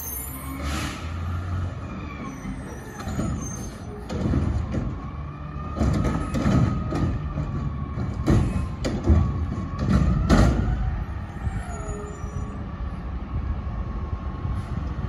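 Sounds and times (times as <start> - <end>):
knocks and clanks: 4.0 - 10.8.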